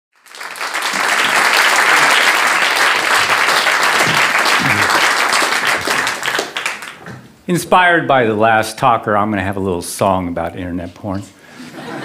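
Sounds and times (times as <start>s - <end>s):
audience applauding: 0.1s - 7.2s.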